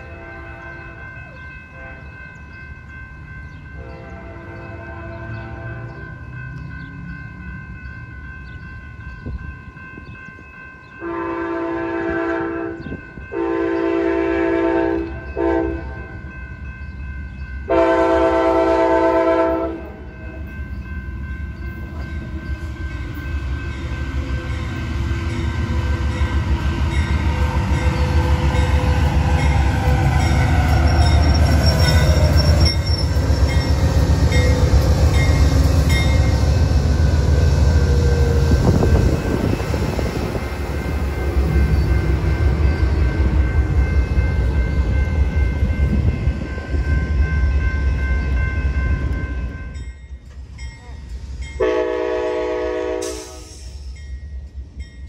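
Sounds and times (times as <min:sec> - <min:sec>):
train horn blowing: 0:00.0 - 0:01.0, 0:01.7 - 0:02.2, 0:03.8 - 0:06.0, 0:11.0 - 0:16.2, 0:17.7 - 0:20.2, 0:51.6 - 0:53.8
passing train rumble: 0:00.0 - 0:55.0.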